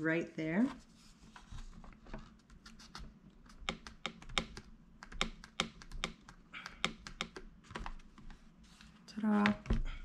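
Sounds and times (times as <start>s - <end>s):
stamp tapping on paper: 3.6s - 7.5s.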